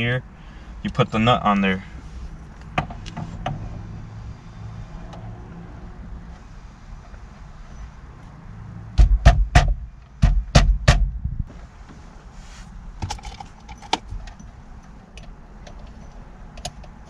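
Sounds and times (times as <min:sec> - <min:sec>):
heavy knocks on steering wheel: 0:09.0 - 0:11.6.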